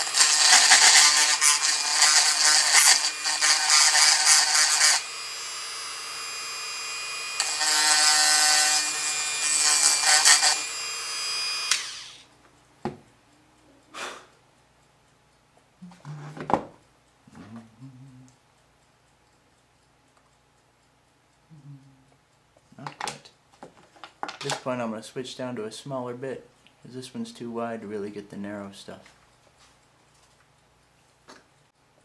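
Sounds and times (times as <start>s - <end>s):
bit grinding epoxy: 0.0s - 12.3s
rotary tool motor whine: 0.0s - 12.3s.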